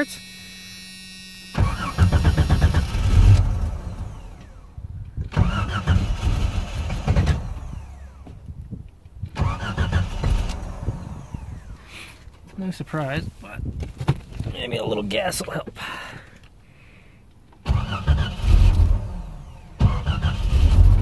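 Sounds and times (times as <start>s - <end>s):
car starter cranking: 1.6s - 4.6s, 5.2s - 8.0s, 9.2s - 11.8s, 17.6s - 21.0s.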